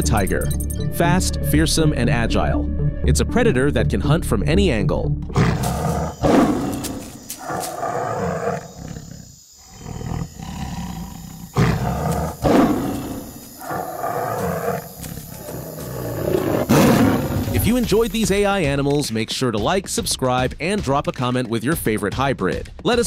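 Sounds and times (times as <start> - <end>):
big cat roars and growls: 5.3 - 17.9.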